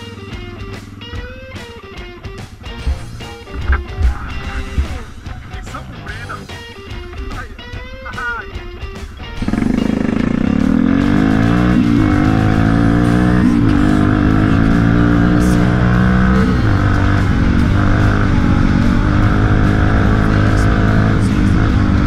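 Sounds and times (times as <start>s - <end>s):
quad bike engine accelerating: 9.4s - 22.0s.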